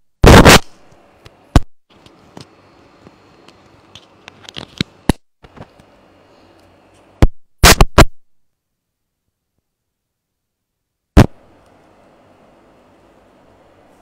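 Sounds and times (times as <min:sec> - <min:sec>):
static hiss: 0:00.0 - 0:06.2, 0:06.9 - 0:08.2, 0:11.1 - 0:14.0
loud pops: 0:00.2 - 0:00.8, 0:07.2 - 0:08.2, 0:11.2 - 0:11.4
clicks and crackles: 0:00.2 - 0:06.0.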